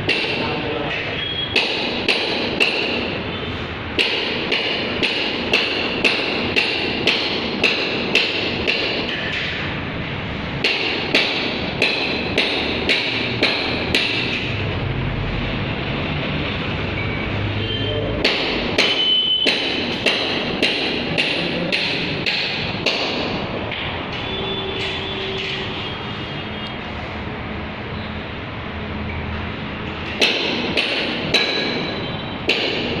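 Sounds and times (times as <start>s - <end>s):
steady background noise: 0.0s - 33.0s
sharp ringing knocks: 1.5s - 3.2s, 10.6s - 14.5s, 18.2s - 23.9s, 30.2s - 33.0s.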